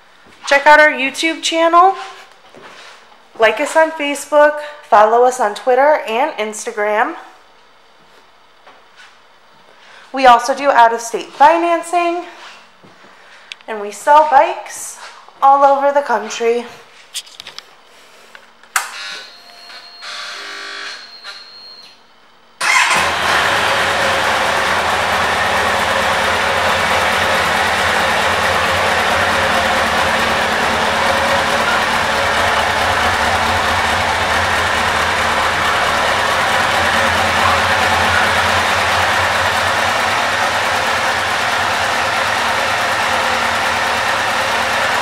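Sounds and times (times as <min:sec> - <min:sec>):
motorcycle engine idling: 0:22.6 - 0:45.0
starter motor whirring: 0:22.6 - 0:45.0.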